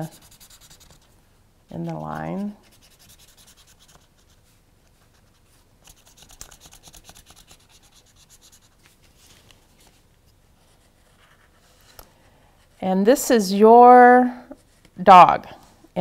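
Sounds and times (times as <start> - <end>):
marker scribbling on paper: 0.0 - 1.1, 1.9 - 4.4, 5.9 - 8.8.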